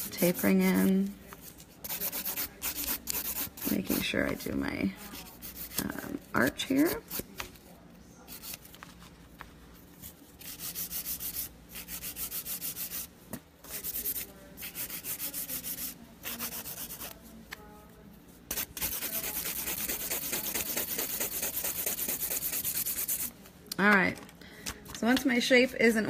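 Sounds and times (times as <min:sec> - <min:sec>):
nail file scraping nail: 0:01.8 - 0:04.1, 0:18.5 - 0:23.3.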